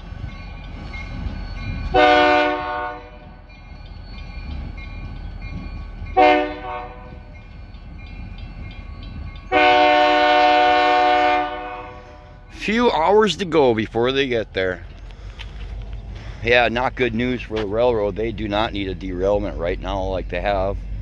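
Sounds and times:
locomotive air horn blasts: 0:01.9 - 0:03.2, 0:06.2 - 0:07.2, 0:09.5 - 0:12.4.

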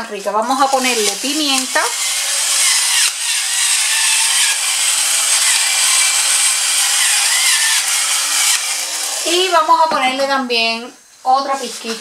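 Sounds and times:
pepper mill grinding: 0:00.5 - 0:09.1.

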